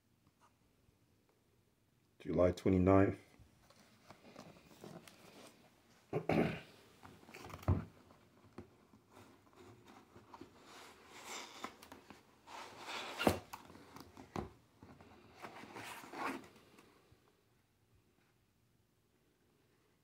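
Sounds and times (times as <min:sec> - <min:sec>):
cardboard rubbing and sliding: 0:09.1 - 0:14.0, 0:15.1 - 0:16.6.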